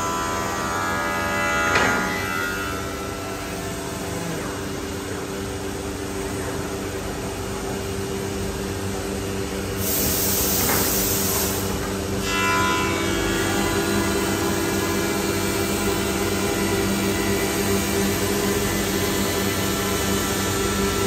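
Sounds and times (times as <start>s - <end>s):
cnc router cutting wood: 0.0s - 21.0s
loud high hiss: 9.8s - 11.9s.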